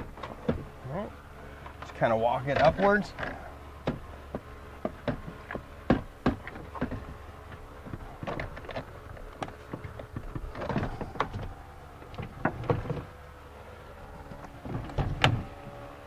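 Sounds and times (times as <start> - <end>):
plastic panel clicking and rubbing: 2.6 - 13.1.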